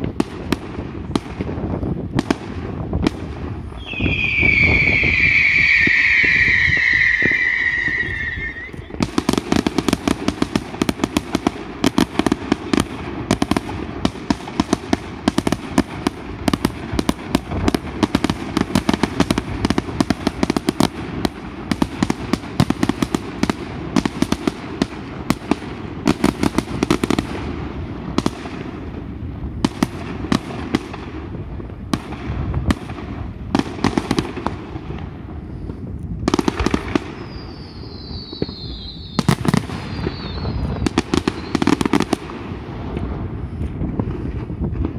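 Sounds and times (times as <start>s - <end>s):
fireworks bangs and crackling: 0.0s - 44.9s
falling firework whistle: 3.7s - 9.4s, 36.6s - 42.1s.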